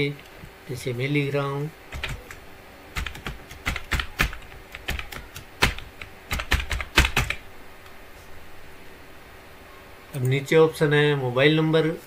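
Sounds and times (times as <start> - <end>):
typing on computer keyboard: 1.9 - 2.4, 3.0 - 7.4.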